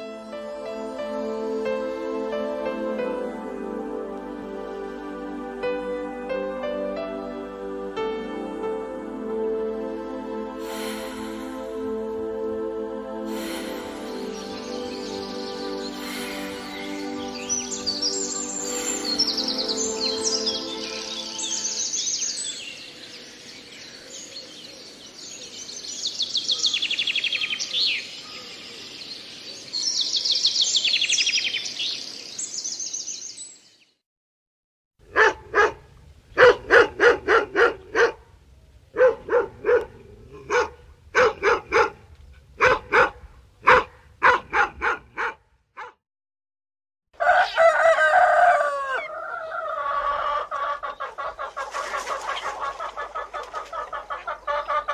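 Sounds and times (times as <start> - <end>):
robin singing trilled phrases: 14.0 - 22.9
dog barking: 35.1 - 38.2, 38.9 - 42.0, 42.6 - 46.0
rooster crowing: 47.2 - 51.0.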